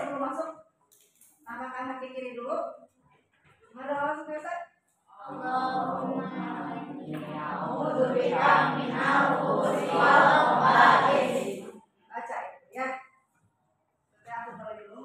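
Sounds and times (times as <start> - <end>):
children speaking in unison: 5.1 - 11.8.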